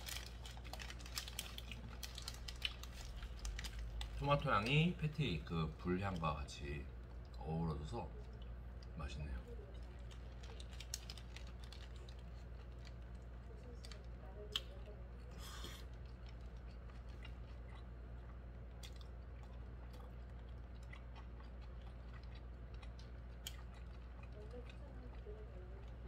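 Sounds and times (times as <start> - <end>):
wet chewing: 0.0 - 4.8, 7.0 - 26.0
steady low hum: 0.0 - 26.0.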